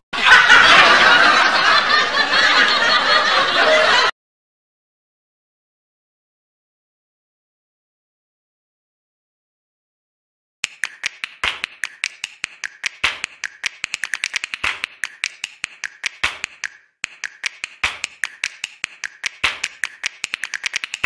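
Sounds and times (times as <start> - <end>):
percussive backing track: 10.6 - 21.0.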